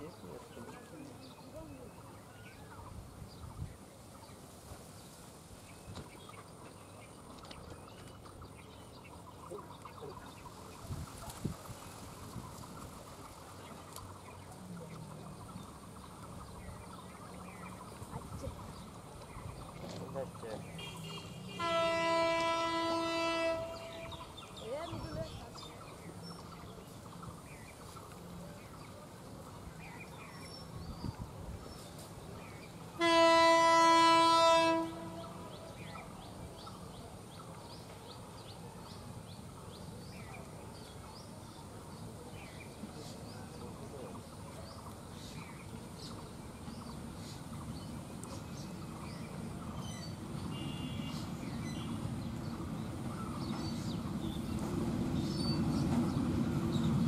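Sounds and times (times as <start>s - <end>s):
birds chirping: 0.0s - 57.0s
low rumble of locomotive: 1.6s - 57.0s
diesel locomotive horn blast: 20.7s - 24.4s, 32.9s - 35.7s, 50.4s - 52.1s.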